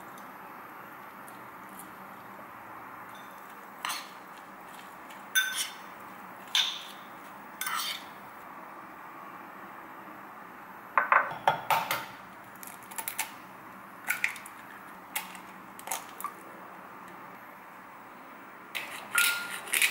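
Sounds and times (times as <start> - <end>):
metal spoon clinking ceramic bowl: 5.4 - 5.8.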